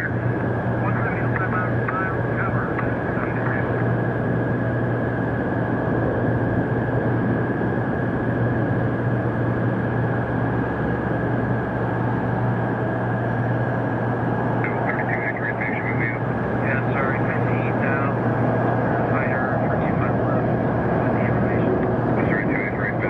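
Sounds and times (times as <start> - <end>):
jet engines rumbling: 0.0 - 23.0.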